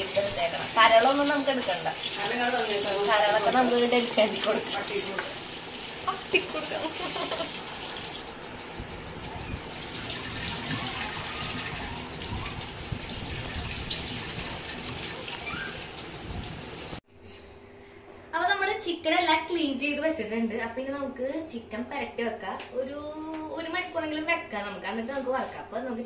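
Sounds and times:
water poured into sink: 0:00.0 - 0:08.3, 0:09.6 - 0:17.0.

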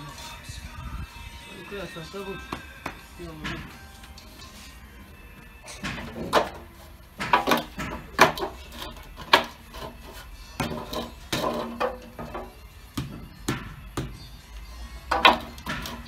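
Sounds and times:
trowel knocking on concrete blocks: 0:05.8 - 0:10.0, 0:10.6 - 0:14.2.

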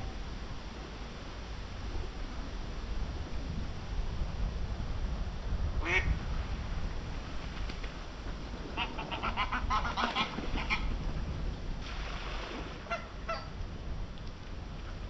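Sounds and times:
waterfowl calling: 0:08.8 - 0:10.9, 0:12.9 - 0:13.5.

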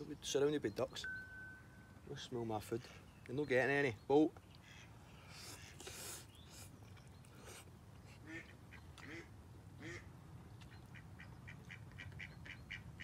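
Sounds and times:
ducks quacking: 0:08.2 - 0:10.1.

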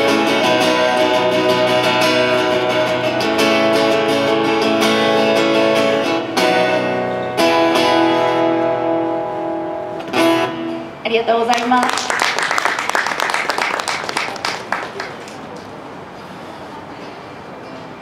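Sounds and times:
acoustic guitar strumming: 0:00.0 - 0:11.1.

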